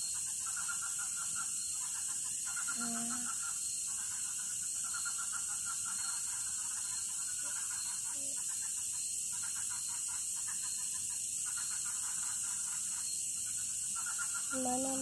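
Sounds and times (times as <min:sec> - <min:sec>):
high-pitched insect drone: 0:00.0 - 0:15.0
pulsing frog calls: 0:00.0 - 0:15.0.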